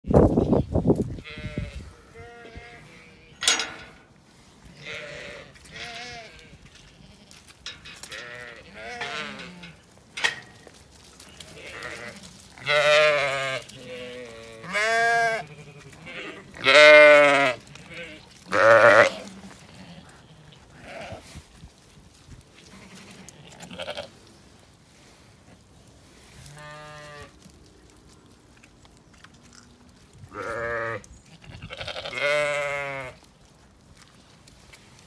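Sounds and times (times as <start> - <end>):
sheep bleating: 1.2 - 3.5, 4.8 - 7.4, 8.1 - 9.8, 11.4 - 21.2, 22.7 - 24.1, 30.3 - 33.2.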